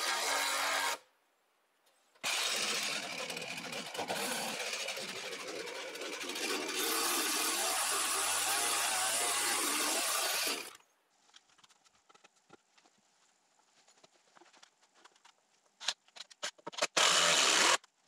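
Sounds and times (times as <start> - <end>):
power drill grinding into wood: 0.0 - 1.0, 2.2 - 10.8, 16.8 - 17.9.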